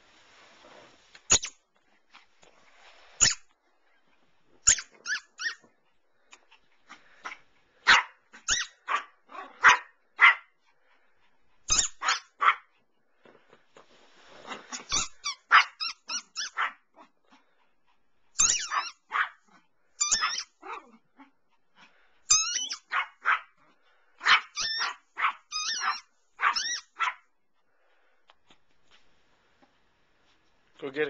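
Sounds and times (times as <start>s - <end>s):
small dog yapping: 4.6s - 5.7s, 7.8s - 10.5s, 11.7s - 12.7s, 14.6s - 16.9s, 18.4s - 21.0s, 22.3s - 23.6s, 24.2s - 27.2s.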